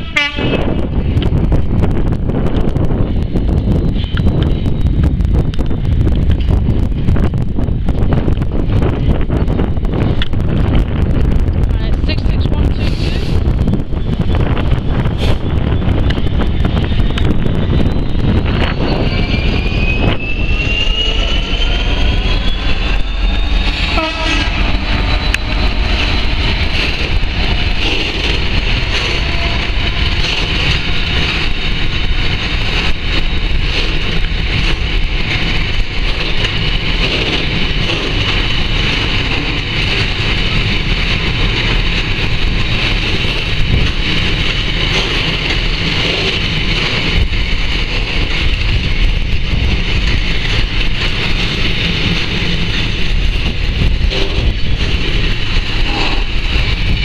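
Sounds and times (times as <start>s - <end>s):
freight train rumbling past: 0.0s - 57.0s
high-pitched squeal: 15.0s - 35.4s
rising tones: 16.0s - 33.4s.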